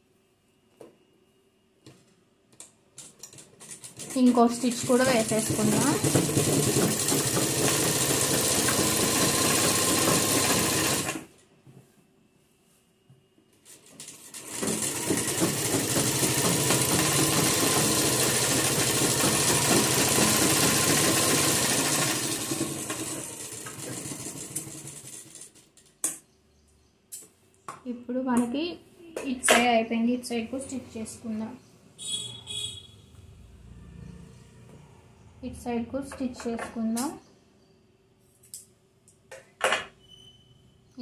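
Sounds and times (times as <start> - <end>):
sewing machine running: 3.7 - 11.3, 14.0 - 25.5.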